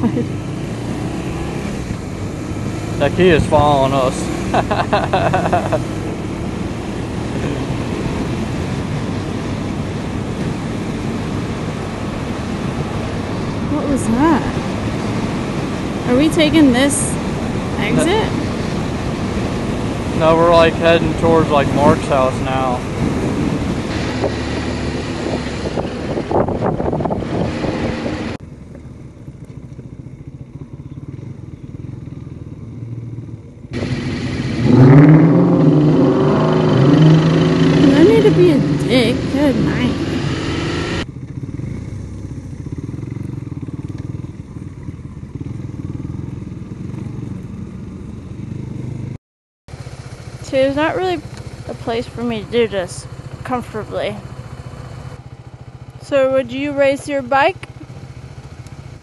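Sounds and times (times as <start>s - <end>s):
motorcycle engine running: 0.0s - 59.0s
vehicle road and wind noise: 0.0s - 59.0s
wind noise on microphone: 21.3s - 28.4s.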